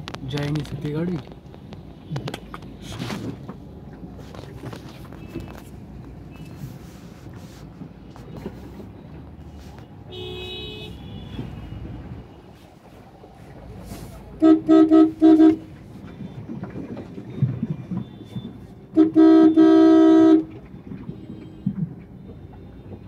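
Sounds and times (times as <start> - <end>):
low hum of traffic: 0.0 - 23.0
car horn honking: 10.0 - 12.3, 14.4 - 15.8, 18.9 - 21.8.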